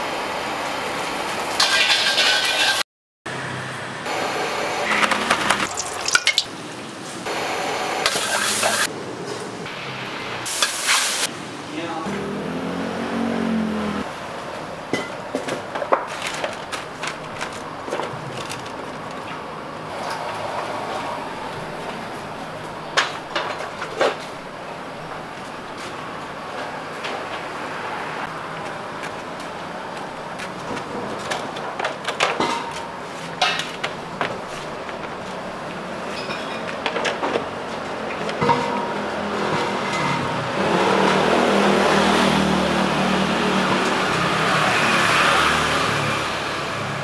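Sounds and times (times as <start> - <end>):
street noise: 0.0 - 47.0
vehicle engine passing: 11.4 - 14.3, 27.3 - 29.0, 37.6 - 47.0.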